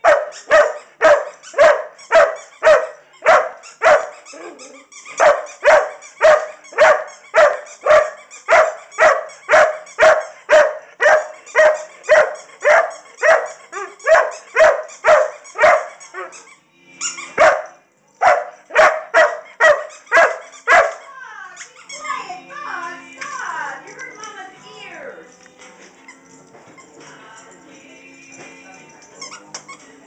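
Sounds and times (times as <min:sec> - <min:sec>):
dog barking: 0:00.0 - 0:16.4, 0:17.3 - 0:21.1.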